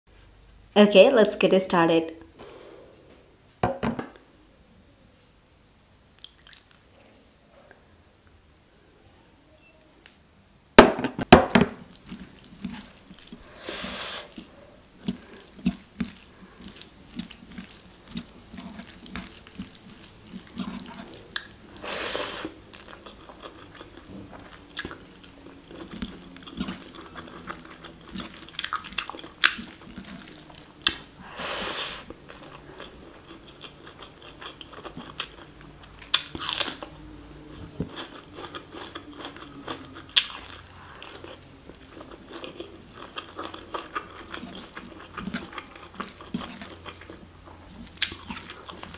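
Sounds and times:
wet mouth sounds: 0:06.2 - 0:06.9
chewing and biting food: 0:11.8 - 0:13.5, 0:14.3 - 0:31.2, 0:32.0 - 0:48.9.

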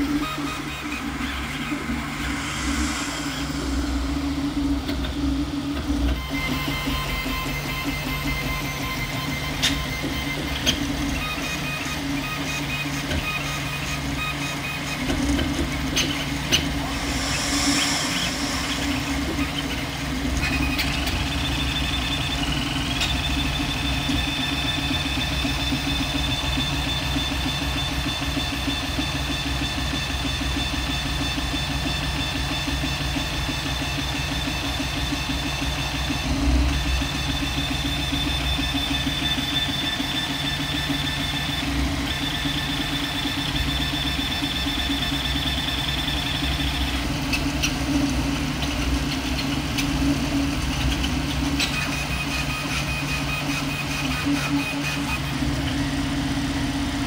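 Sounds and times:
low hum: 0:00.0 - 0:07.2, 0:15.2 - 0:21.6
thin high whine: 0:00.0 - 0:12.7, 0:13.4 - 0:27.2
fans whirring: 0:00.0 - 0:26.7.

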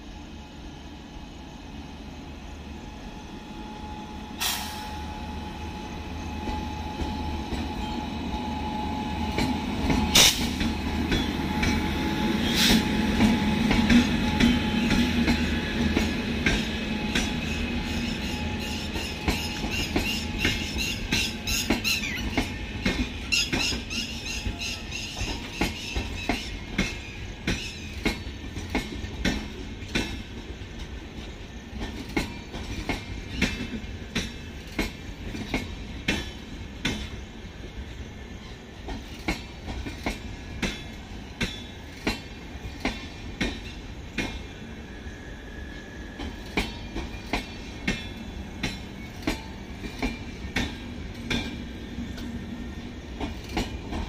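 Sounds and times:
train rumble: 0:00.0 - 0:54.0.

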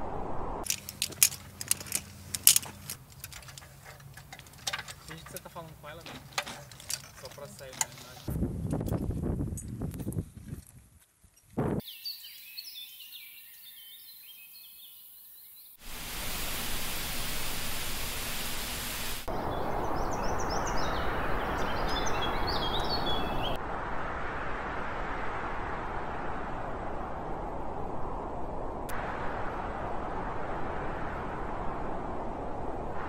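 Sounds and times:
songbirds chirping: 0:00.7 - 0:08.3, 0:11.8 - 0:15.8, 0:19.3 - 0:23.6.

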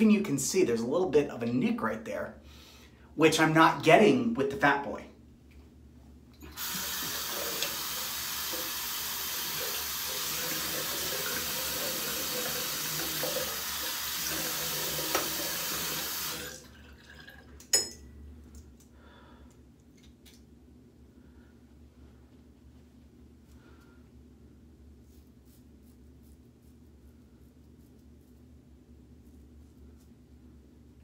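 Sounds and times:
sink tap running: 0:06.4 - 0:17.9.

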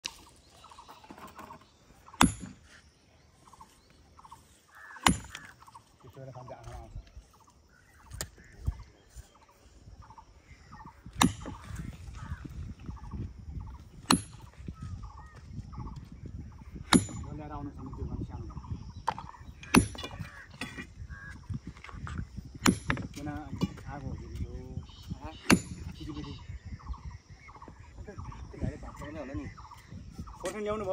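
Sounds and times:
bird calls: 0:00.0 - 0:30.9
hammer striking steel wedges: 0:02.2 - 0:02.6, 0:05.0 - 0:05.5.

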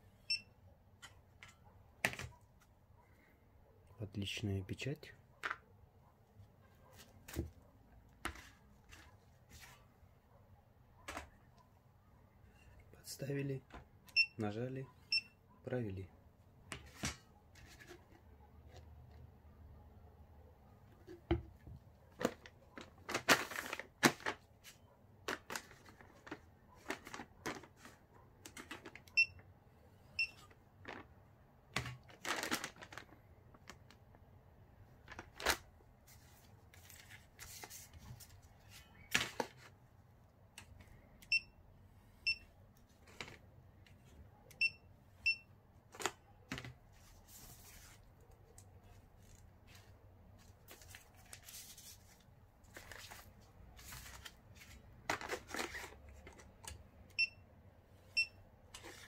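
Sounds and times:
plastic packaging crinkling: 0:32.0 - 0:34.0.

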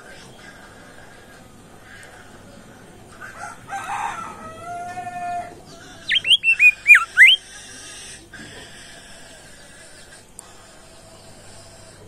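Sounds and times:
songbird calling: 0:06.0 - 0:07.4
bird whistles sliding down: 0:06.1 - 0:07.4.

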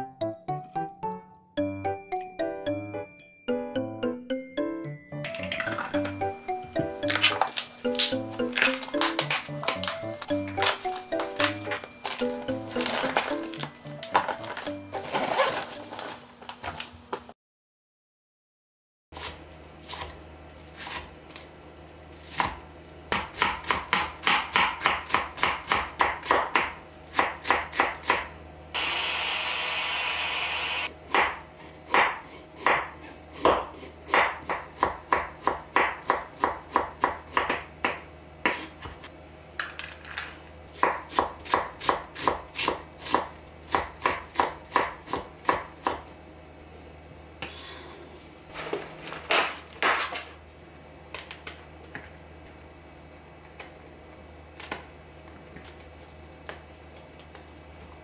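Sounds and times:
knife chopping on wooden board: 0:22.3 - 0:28.3, 0:31.1 - 0:39.0, 0:40.8 - 0:46.0.

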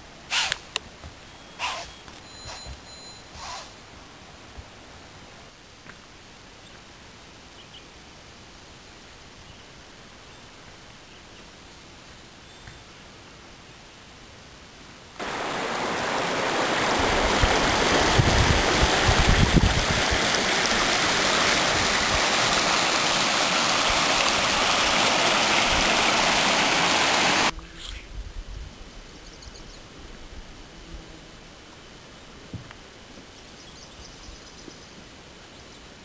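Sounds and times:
stream rushing over rocks: 0:15.2 - 0:27.5.

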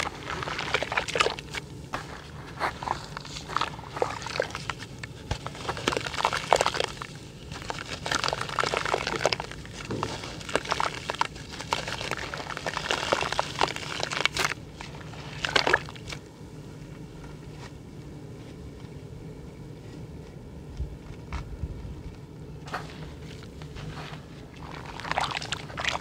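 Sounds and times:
muddy water sloshing: 0:00.0 - 0:16.2, 0:22.8 - 0:26.0
gritty dirt crackling: 0:00.0 - 0:16.3, 0:19.9 - 0:26.0.

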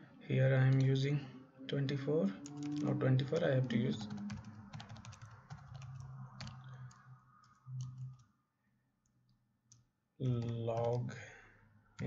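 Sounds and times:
keyboard typing clicks: 0:02.4 - 0:08.3, 0:09.7 - 0:11.0.

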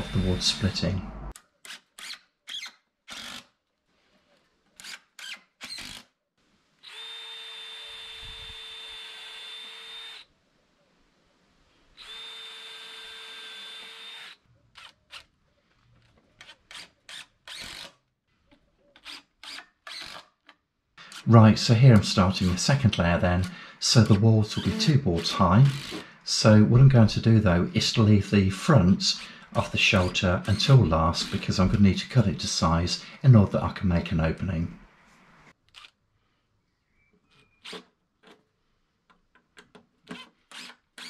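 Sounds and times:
cordless drill drilling wood: 0:00.0 - 0:00.9, 0:01.6 - 0:03.5, 0:04.8 - 0:06.1, 0:06.8 - 0:10.3, 0:12.0 - 0:15.3, 0:16.4 - 0:18.0, 0:19.0 - 0:20.3, 0:23.3 - 0:26.2, 0:29.2 - 0:31.7, 0:40.1 - 0:41.0
drill trigger bursts: 0:00.0 - 0:03.4, 0:06.8 - 0:10.2, 0:12.0 - 0:14.9, 0:22.0 - 0:26.2, 0:29.1 - 0:31.7, 0:40.1 - 0:41.0.

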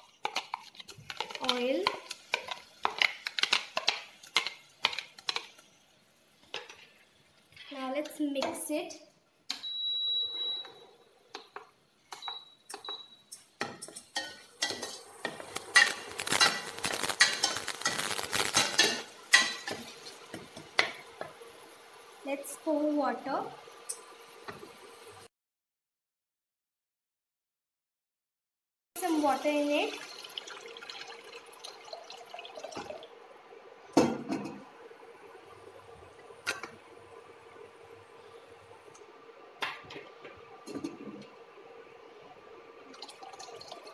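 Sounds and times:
water pouring into a pot: 0:14.5 - 0:22.8, 0:29.0 - 0:33.3, 0:42.8 - 0:43.9.

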